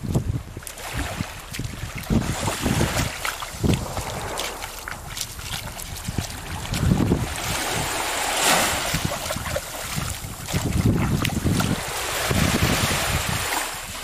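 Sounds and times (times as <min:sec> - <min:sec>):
small waves washing onto shore: 0:00.0 - 0:14.0
wind buffeting microphone: 0:00.0 - 0:14.0.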